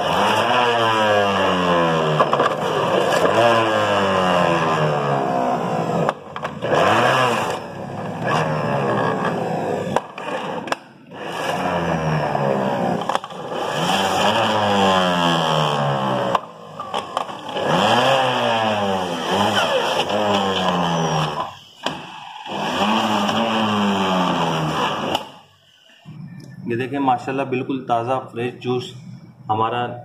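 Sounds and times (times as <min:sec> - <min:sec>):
electric juicer motor running: 0:17.4 - 0:25.4.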